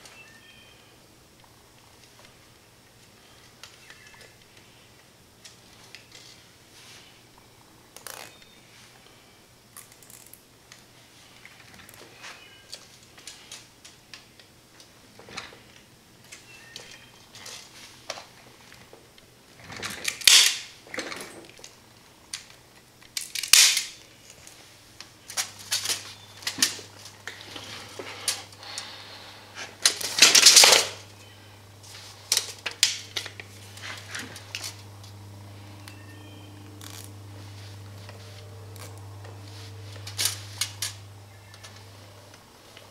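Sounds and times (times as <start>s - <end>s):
low steady hum: 0.0s - 42.9s
zip tie ratcheting pulls: 36.7s - 37.2s.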